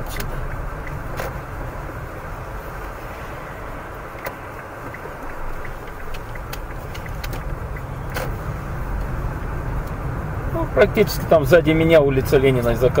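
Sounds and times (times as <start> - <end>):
car engine and tyres on wet road: 0.0 - 13.0
light ticks: 4.1 - 8.3, 9.8 - 10.0.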